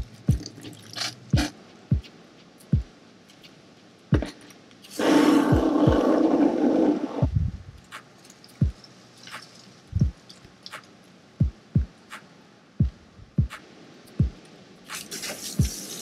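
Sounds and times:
deep bass drum beat: 0.0 - 0.5, 1.4 - 2.1, 4.1 - 4.3, 5.5 - 6.1, 7.2 - 7.8, 9.9 - 10.2, 11.4 - 11.9, 12.8 - 13.6.

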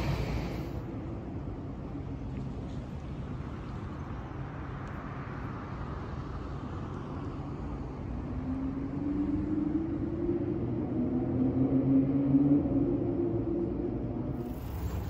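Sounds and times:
traffic rumble: 0.0 - 15.0.

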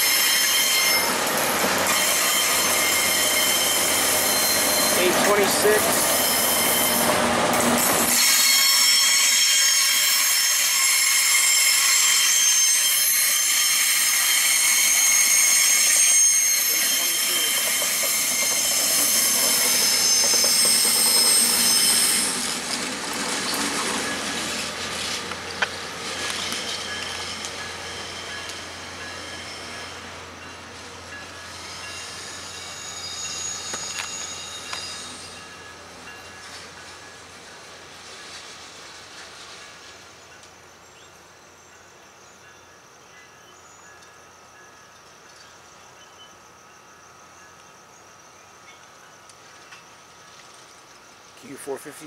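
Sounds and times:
train wheels squealing on rail: 0.0 - 52.0.

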